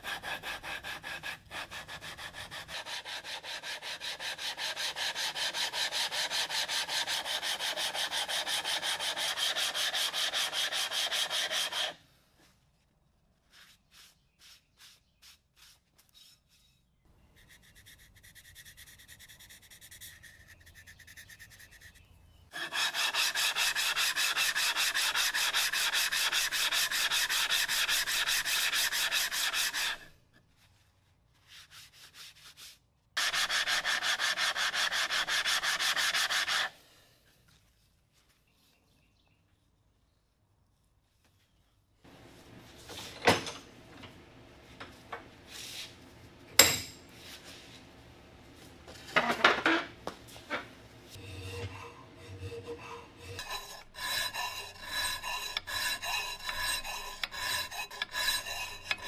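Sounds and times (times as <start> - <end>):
steel scrubbing on sharpening plate: 17.4 - 30.1, 51.2 - 59.0.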